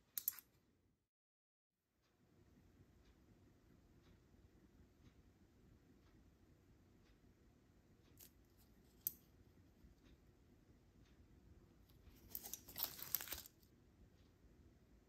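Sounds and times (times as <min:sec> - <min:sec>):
plastic wrapper crinkling and tearing: 0:12.2 - 0:13.6.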